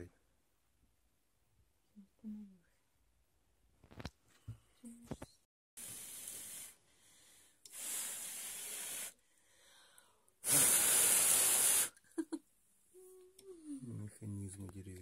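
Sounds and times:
hissing bursts: 0:05.8 - 0:06.8, 0:07.7 - 0:09.2, 0:10.4 - 0:12.0.

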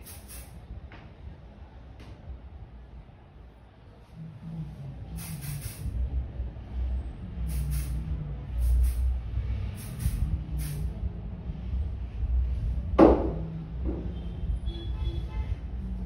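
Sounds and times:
aerosol can spraying: 0:00.0 - 0:00.6, 0:05.2 - 0:05.9, 0:07.5 - 0:08.0, 0:08.6 - 0:09.1, 0:09.8 - 0:10.9
steady low hum: 0:00.0 - 0:16.0.

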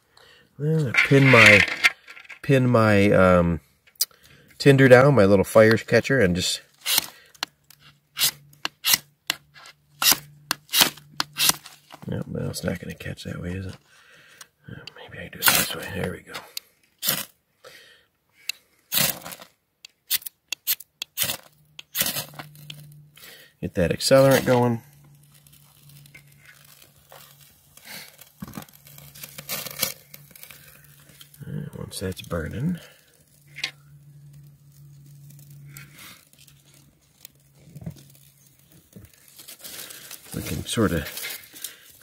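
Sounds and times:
dry twigs rustling and clicking: 0:24.1 - 0:42.0.

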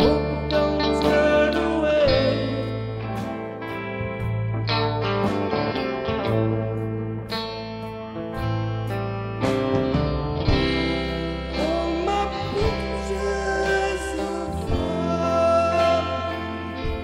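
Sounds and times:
man singing: 0:00.0 - 0:03.2, 0:11.4 - 0:17.0
drums: 0:00.0 - 0:17.0
electric guitars: 0:00.0 - 0:17.0.

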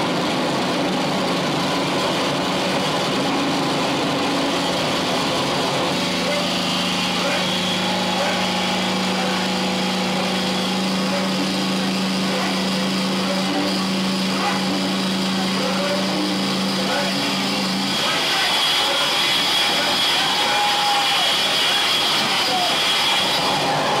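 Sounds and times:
low hum: 0:00.0 - 0:18.2
harsh electronic noise: 0:00.0 - 0:24.0.

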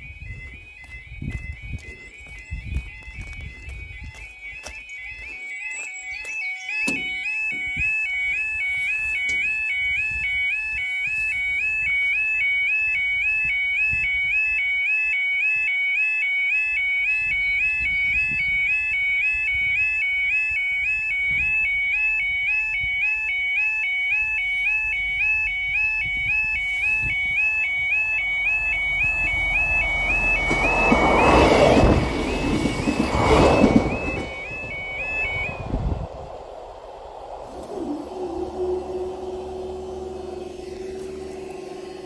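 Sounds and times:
level crossing warble alarm: 0:00.0 - 0:42.0
low rumble: 0:27.8 - 0:42.0.

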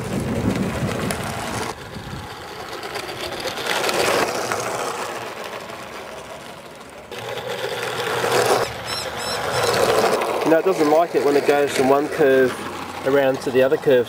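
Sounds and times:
model train motor whirring: 0:00.0 - 0:14.0.

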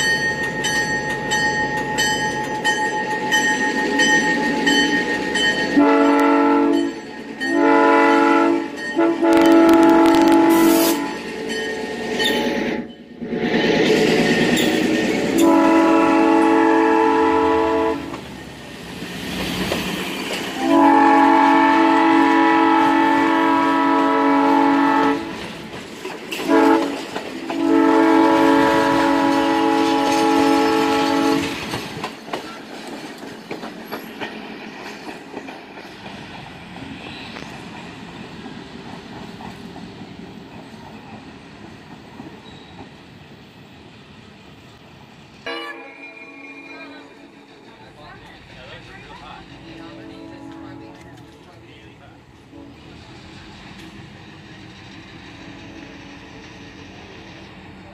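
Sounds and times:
train wheels clicking over rail joints: 0:00.0 - 0:07.6, 0:18.0 - 0:20.8, 0:25.2 - 0:43.1, 0:47.2 - 0:57.9
locomotive air horn: 0:05.7 - 0:11.3, 0:15.4 - 0:18.2, 0:20.6 - 0:25.4, 0:26.4 - 0:31.6, 0:49.9 - 0:51.3.

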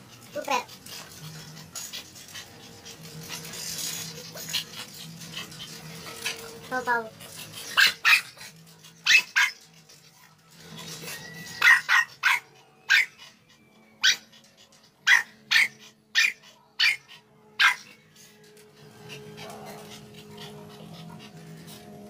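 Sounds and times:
dog barking: 0:07.8 - 0:08.4, 0:09.0 - 0:09.6, 0:11.6 - 0:13.2, 0:15.0 - 0:18.0.

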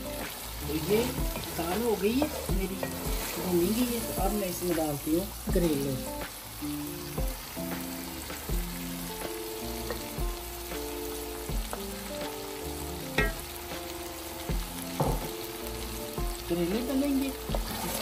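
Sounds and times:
vegetables sizzling in a pan: 0:00.0 - 0:18.0
utensil knocking against pan: 0:13.1 - 0:13.4, 0:14.9 - 0:15.3.

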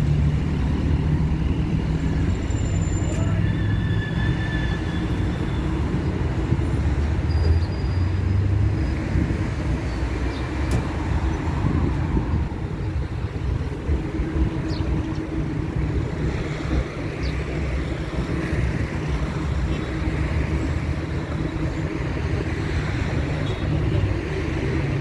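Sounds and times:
road traffic passing: 0:00.0 - 0:25.0.

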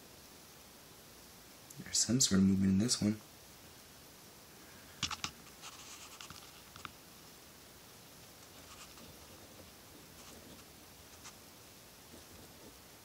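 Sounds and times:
light scratching: 0:05.0 - 0:07.0, 0:08.2 - 0:11.4.

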